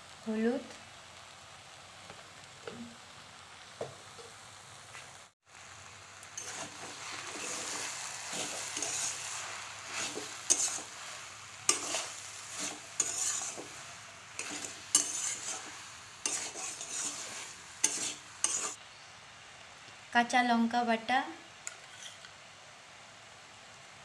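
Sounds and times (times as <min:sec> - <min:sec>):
oil sizzling: 0:00.0 - 0:18.8
spatula scraping leaves in pan: 0:06.3 - 0:18.8, 0:21.7 - 0:22.3
spatula clacking against pan: 0:14.4 - 0:15.7, 0:16.3 - 0:18.7.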